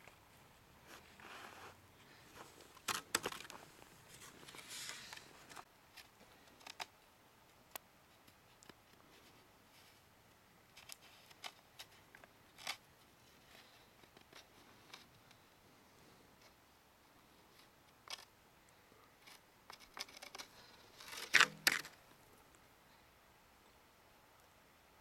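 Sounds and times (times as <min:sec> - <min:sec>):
scraping ski base: 0:00.8 - 0:05.7.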